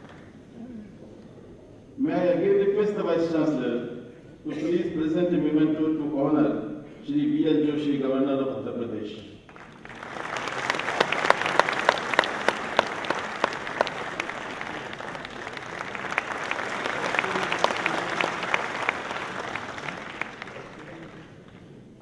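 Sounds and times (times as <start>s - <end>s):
audience applauding: 9.5s - 22.0s.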